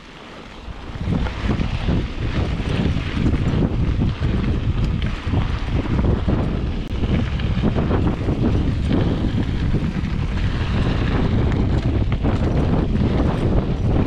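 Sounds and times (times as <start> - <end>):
tyres rolling on dirt trail: 0.0 - 14.0
wind buffeting microphone: 0.0 - 14.0
bike rattling and knocking: 0.9 - 14.0.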